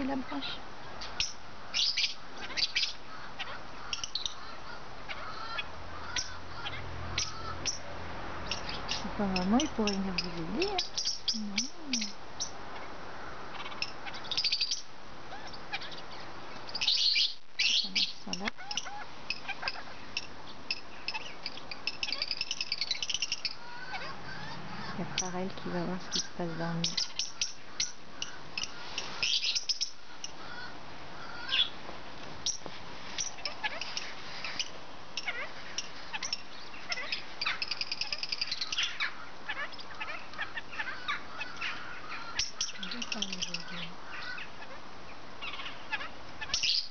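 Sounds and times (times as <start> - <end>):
lovebirds chirping: 0.0 - 46.9.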